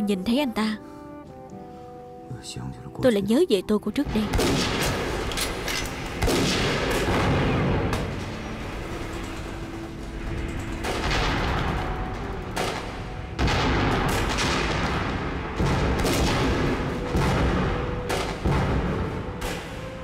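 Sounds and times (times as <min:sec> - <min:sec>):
loud explosive bangs: 0:04.2 - 0:05.3, 0:06.1 - 0:09.2, 0:10.2 - 0:19.9
background gunfire: 0:04.2 - 0:20.0.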